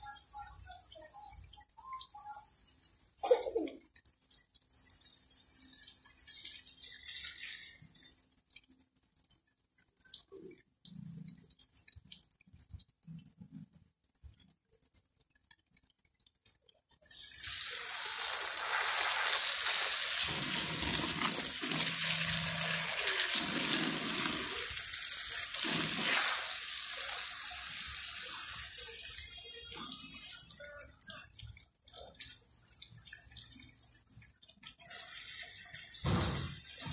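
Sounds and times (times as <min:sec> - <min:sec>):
water gushing and splashing: 0:17.1 - 0:29.4, 0:34.8 - 0:36.9.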